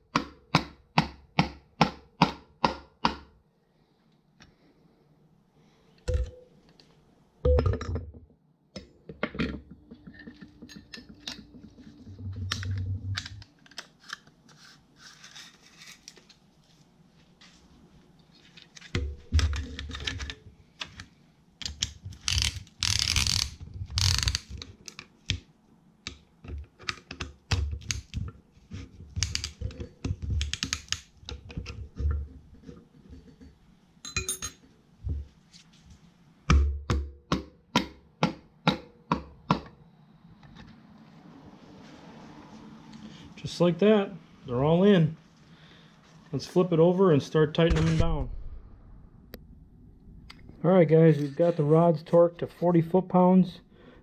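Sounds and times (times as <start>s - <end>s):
metal clicks and clinks: 34.0s - 34.6s.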